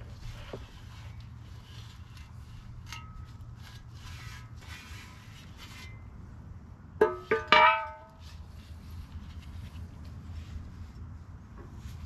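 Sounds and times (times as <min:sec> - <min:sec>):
hands scrubbing parts in solvent: 0:00.2 - 0:05.9.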